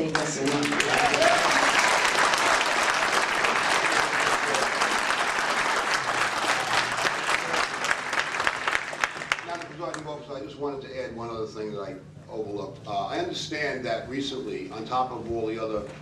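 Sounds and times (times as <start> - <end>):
crowd applauding: 0.0 - 10.0.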